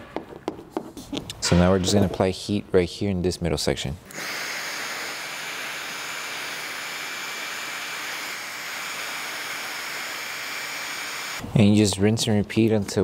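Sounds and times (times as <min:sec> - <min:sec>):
heat gun blowing hot air: 0:04.1 - 0:11.4.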